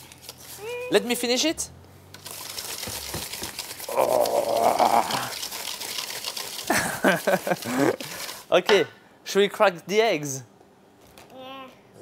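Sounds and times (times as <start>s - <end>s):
whisk clattering in metal bowl: 2.2s - 4.0s, 5.1s - 8.5s
person's wordless vocal sound: 3.9s - 5.4s.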